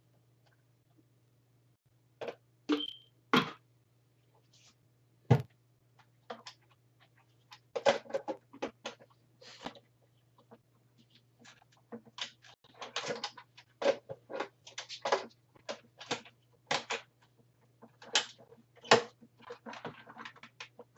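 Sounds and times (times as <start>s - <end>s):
plastic clattering: 6.2s - 9.8s, 10.4s - 20.9s.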